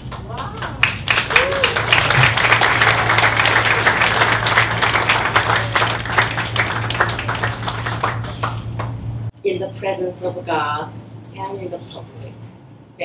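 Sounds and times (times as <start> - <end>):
people clapping: 0.0 - 9.2
steady low hum: 0.0 - 13.0.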